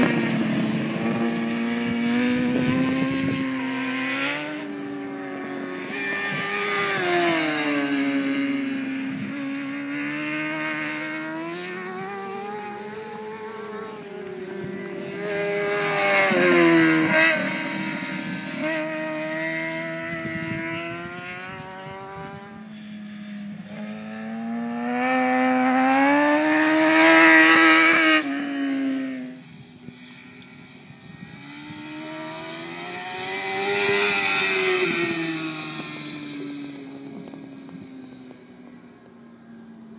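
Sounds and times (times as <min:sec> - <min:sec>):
motorcycles revving past: 0:00.0 - 0:39.9.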